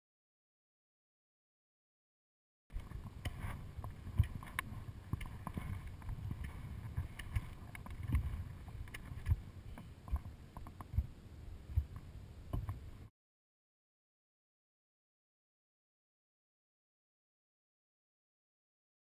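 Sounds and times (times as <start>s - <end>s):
wind rumble on microphone: 2.7s - 13.1s
ski stride thumps and clicks: 2.8s - 11.1s.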